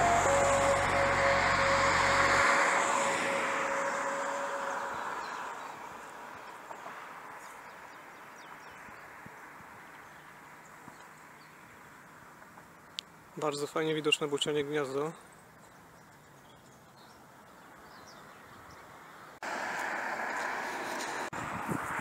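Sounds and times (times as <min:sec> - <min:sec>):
background music: 0:00.0 - 0:04.8
broad rushing noise: 0:00.0 - 0:06.3.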